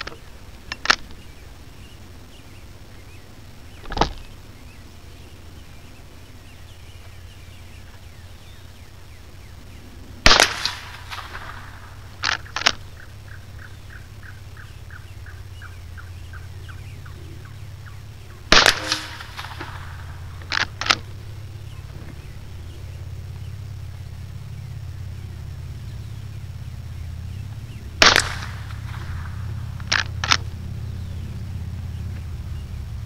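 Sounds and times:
faint fast ticks: 0.0s - 33.0s
rifle shots: 10.2s - 13.0s, 18.5s - 21.3s, 28.0s - 30.5s.

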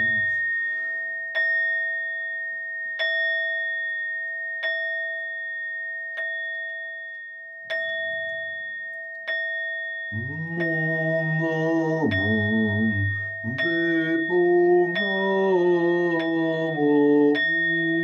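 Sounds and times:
bell-like metal instrument struck: 0.0s - 2.0s.

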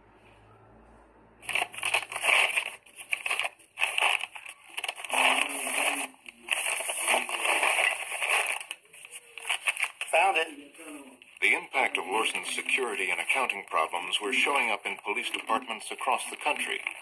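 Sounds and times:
paper envelopes rustling: 1.4s - 10.4s, 11.8s - 17.0s.

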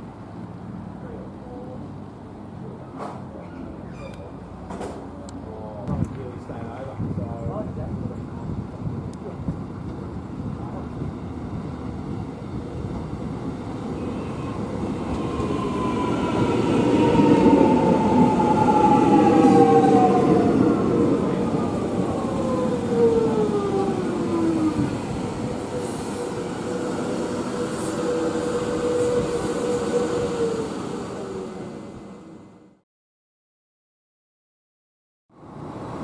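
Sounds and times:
train rolling rumble: 0.9s - 32.6s
train motor whine: 21.6s - 32.2s.

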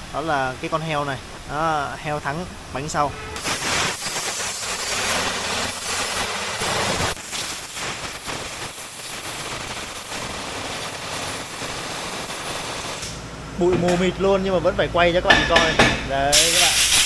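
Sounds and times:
air blow gun hissing: 3.3s - 13.2s, 16.3s - 17.0s.

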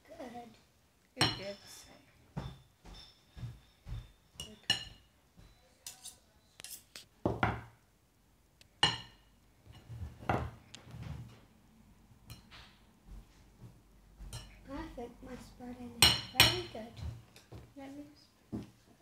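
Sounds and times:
cutlery scraping on ceramic plates: 1.2s - 7.1s.

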